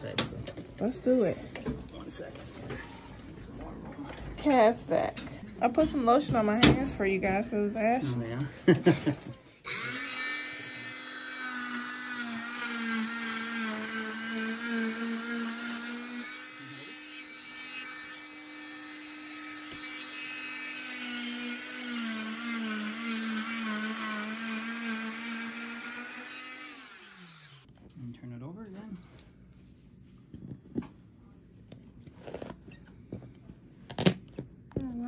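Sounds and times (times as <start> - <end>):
cast saw whining: 9.6 - 27.7.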